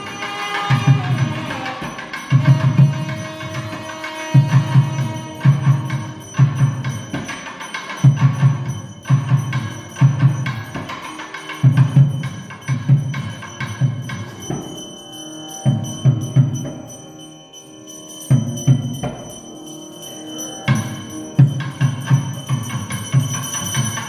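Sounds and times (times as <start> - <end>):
held pitched melody: 0.0 - 24.0
steady metallic ringing: 0.0 - 24.0
drum beating quick rhythm: 0.8 - 14.8.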